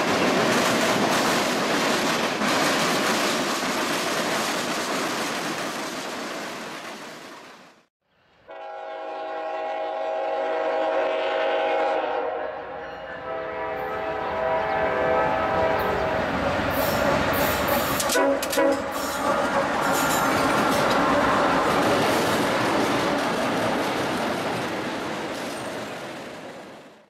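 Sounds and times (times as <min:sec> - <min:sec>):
freight train wheels rumbling on rails: 0:00.0 - 0:07.9, 0:13.6 - 0:27.0
locomotive air horn: 0:08.4 - 0:20.4.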